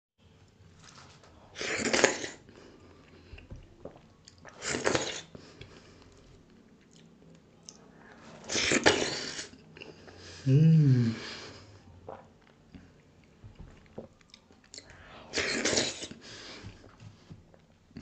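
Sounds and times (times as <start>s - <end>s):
mouth clicks and chewing: 12.1s - 14.9s.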